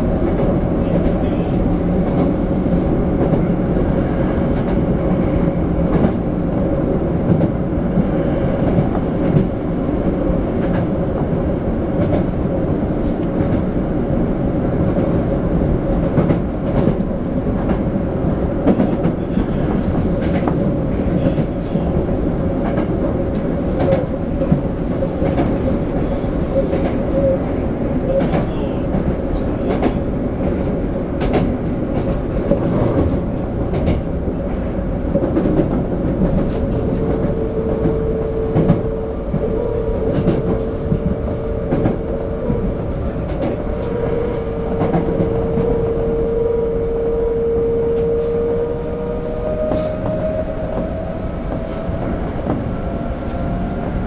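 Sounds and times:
subway car rumble: 0:00.0 - 0:54.0
train motor whine: 0:36.6 - 0:53.7.

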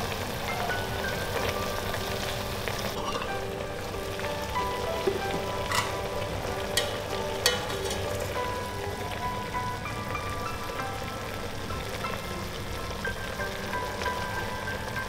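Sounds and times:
liquid simmering and bubbling: 0:00.0 - 0:15.0
metal tongs clicking: 0:06.7 - 0:08.4.

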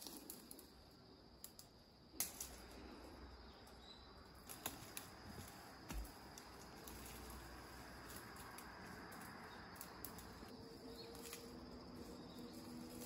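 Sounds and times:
dry leaves crackling underfoot: 0:00.0 - 0:00.8, 0:03.7 - 0:13.0
twig snapping: 0:04.4 - 0:11.6.

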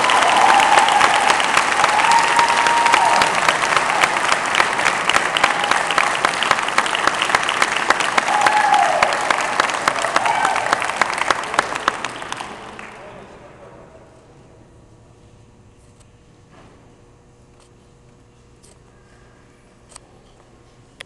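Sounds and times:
audience clapping: 0:00.0 - 0:13.4.

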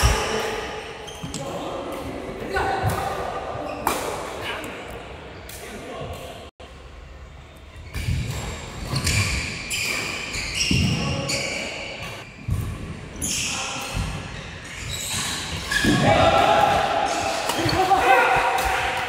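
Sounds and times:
shoes squeaking on floor: 0:07.8 - 0:16.1.

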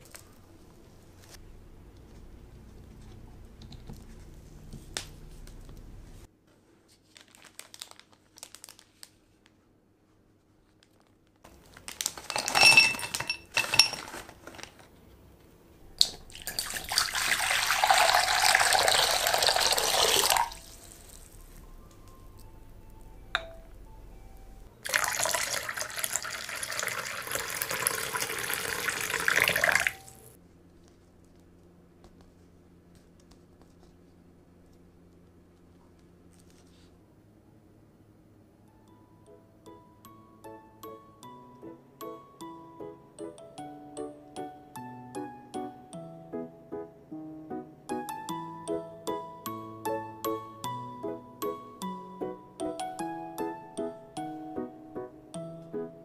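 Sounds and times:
water pouring into glass bowl: 0:16.0 - 0:21.3, 0:24.8 - 0:30.4.

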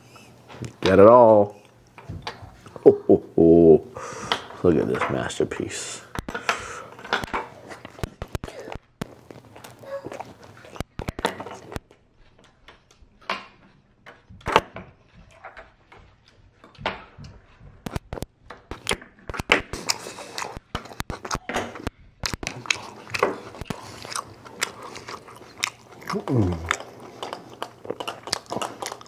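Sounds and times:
chewing and biting food: 0:06.2 - 0:13.0, 0:15.2 - 0:29.0.

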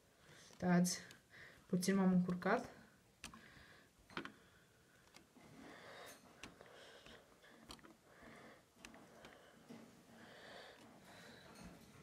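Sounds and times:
faint breathing: 0:00.0 - 0:01.7, 0:03.2 - 0:12.0
fingertip tapping touchscreen: 0:08.8 - 0:09.5.

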